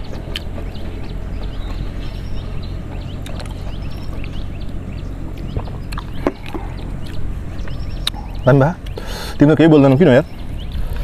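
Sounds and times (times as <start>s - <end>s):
low outdoor rumble: 0.0s - 11.0s
small birds chirping: 0.0s - 11.0s.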